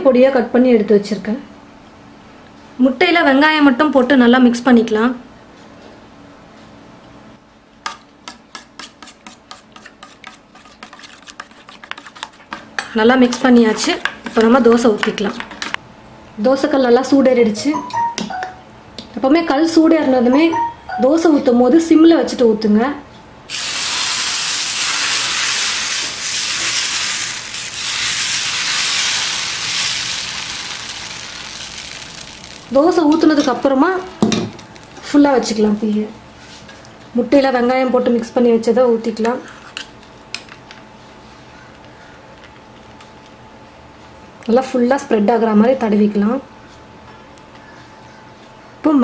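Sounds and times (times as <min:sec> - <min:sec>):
batter sizzling on hot griddle: 0:23.5 - 0:35.7.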